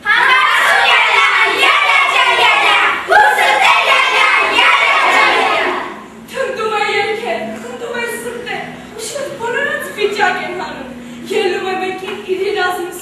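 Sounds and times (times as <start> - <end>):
girls singing together: 0.0 - 6.1.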